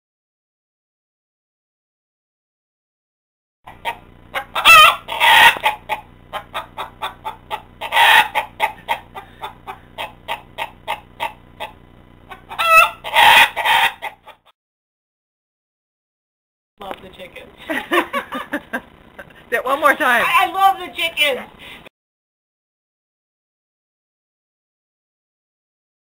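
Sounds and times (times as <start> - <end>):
chicken drawn-out calls: 3.7 - 14.5
chickens clucking: 3.7 - 14.5.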